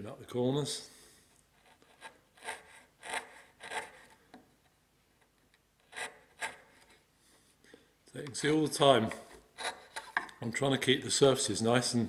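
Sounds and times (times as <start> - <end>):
chisel slicing wood: 1.6 - 4.2, 5.8 - 6.9, 8.4 - 10.3.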